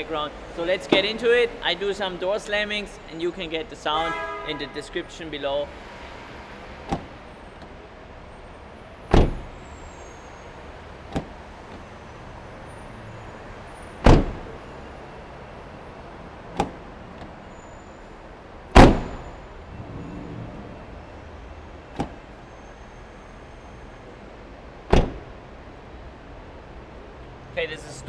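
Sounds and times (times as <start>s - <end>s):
car door slamming: 6.8s - 7.1s, 9.1s - 9.6s, 11.1s - 11.8s, 14.0s - 14.6s, 16.6s - 17.4s, 18.7s - 19.2s, 21.9s - 22.3s, 24.9s - 25.4s
car door handle and latch click: 6.9s - 7.7s, 9.1s - 9.5s, 11.1s - 11.4s, 14.0s - 14.5s, 18.8s - 19.2s, 22.0s - 22.2s, 24.9s - 25.3s.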